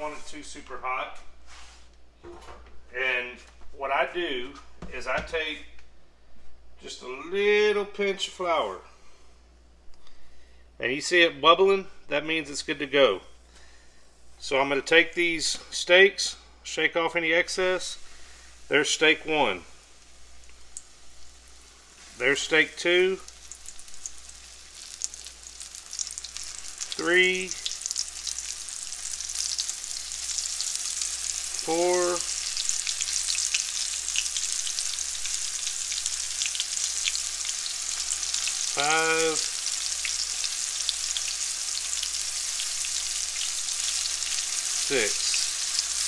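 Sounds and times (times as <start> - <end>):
meat sizzling in a skillet: 17.9 - 46.0.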